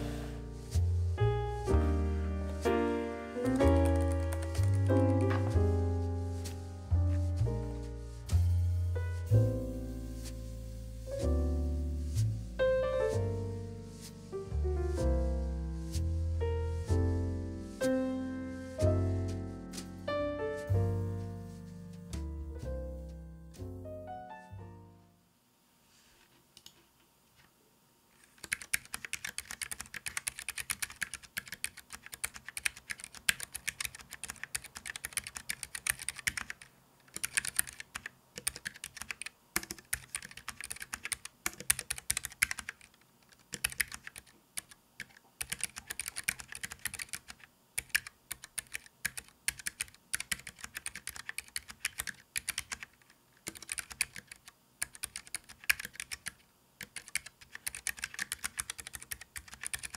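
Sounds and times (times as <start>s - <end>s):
mechanical keyboard typing: 3.4s - 5.7s, 28.4s - 59.9s.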